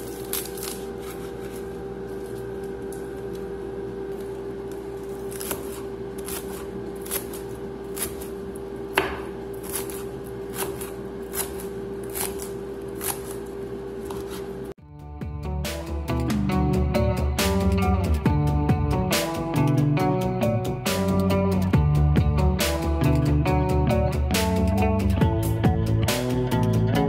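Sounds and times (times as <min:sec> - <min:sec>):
steady hum: 0:00.0 - 0:27.0
knife chopping on wooden board: 0:08.9 - 0:13.4.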